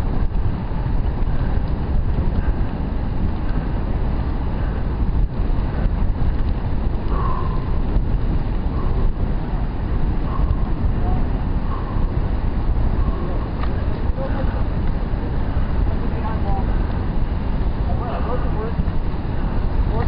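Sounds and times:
wind rushing over microphone: 0.0 - 20.0.

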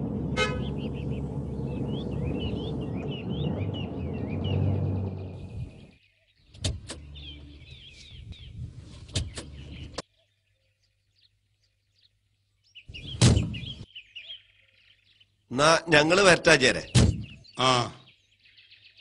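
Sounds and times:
car engine stopping: 0.0 - 8.2
birds chirping: 0.0 - 19.0.

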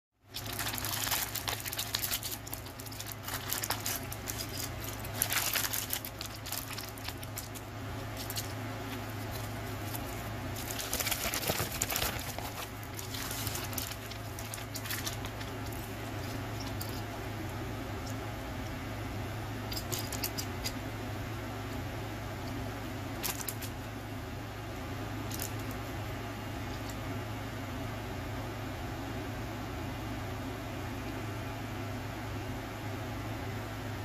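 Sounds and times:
plastic bag crinkling: 0.3 - 17.1
plastic pieces rattling on table: 0.4 - 7.6, 10.6 - 17.0.

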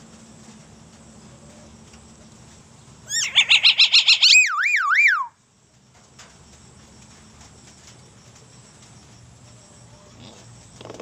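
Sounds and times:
myna bird calling: 3.0 - 5.4.

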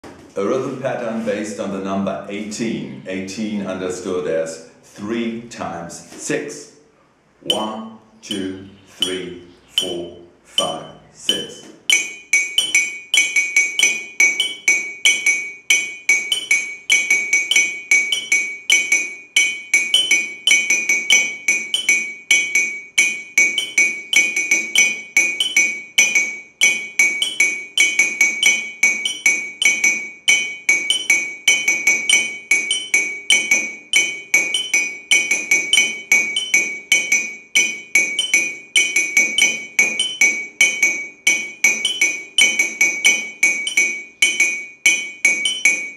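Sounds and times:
ceramic mugs clinking: 10.6 - 45.9.

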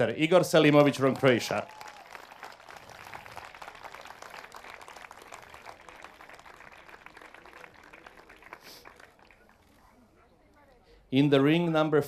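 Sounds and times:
crowd applauding: 0.6 - 9.9.

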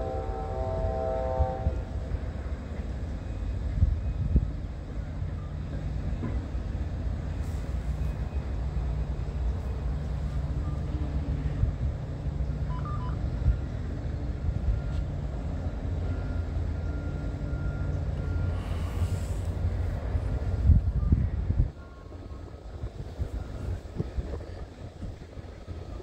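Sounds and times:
diesel train rumbling: 0.0 - 26.0
short high beeps: 12.7 - 13.2.

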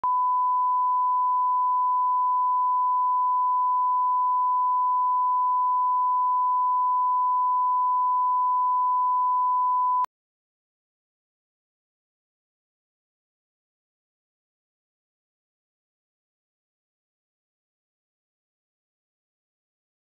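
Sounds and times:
sine test tone: 0.0 - 10.1.

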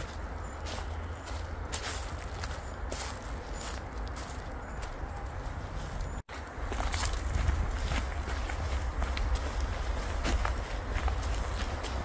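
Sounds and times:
footsteps outdoors: 0.0 - 12.0.

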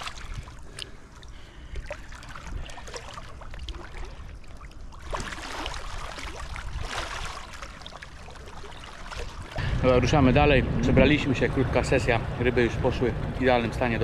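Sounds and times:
river water splashing: 0.0 - 10.2.

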